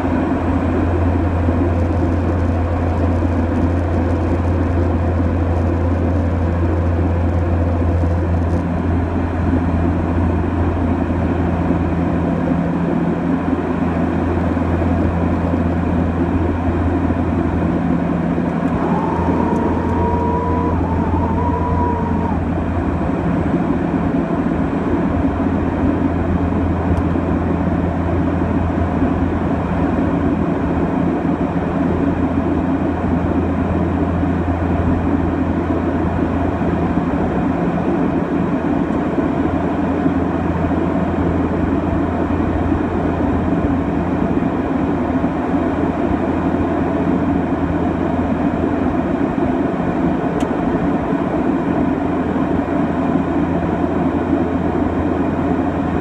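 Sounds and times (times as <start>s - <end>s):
turboprop engines droning: 0.0s - 56.0s
short wavering tone: 18.7s - 22.6s.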